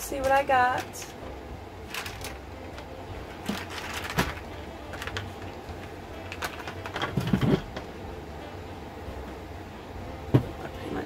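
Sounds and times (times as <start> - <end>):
low steady hum: 0.0 - 11.0
beads and twine clicking and rustling: 1.8 - 7.7.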